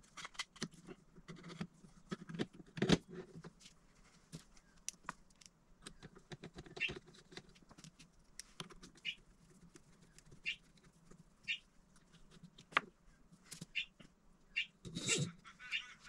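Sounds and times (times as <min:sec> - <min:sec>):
cable and plastic clicks and rattles: 0:00.0 - 0:03.7.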